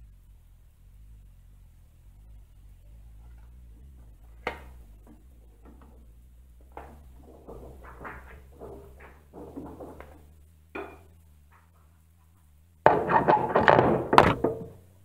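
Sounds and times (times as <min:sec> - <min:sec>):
steady low hum: 0:00.0 - 0:15.0
metal clanking on a lathe: 0:06.6 - 0:11.1, 0:12.8 - 0:14.8.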